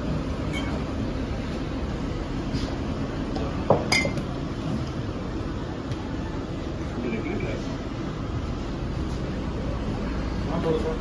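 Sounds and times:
steady background hum: 0.0s - 11.0s
glass bottles clinking: 3.7s - 4.2s.

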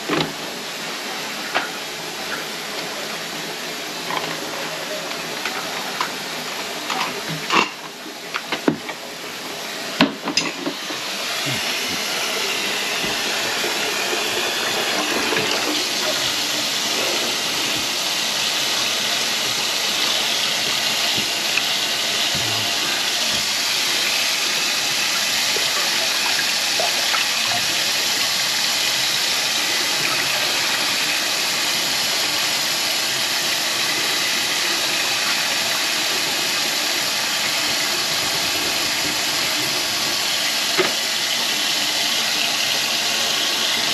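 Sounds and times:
faucet running into steel sink: 10.4s - 43.9s.

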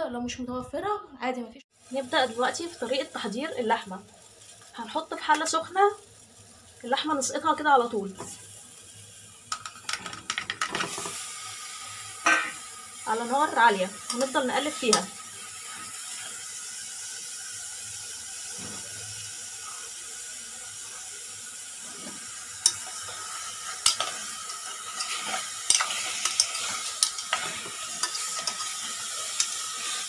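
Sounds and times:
meat sizzling in a pot: 1.7s - 30.0s
spoon clinking and scraping pot: 22.0s - 30.0s.

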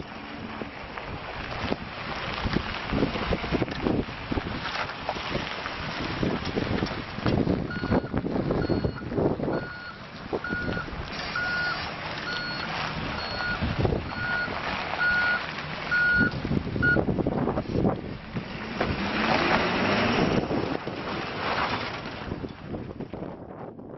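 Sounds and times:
diesel engine running: 0.0s - 23.4s
wind on microphone: 0.5s - 11.7s, 12.4s - 23.9s
truck backup alarm beeping: 7.6s - 17.0s.

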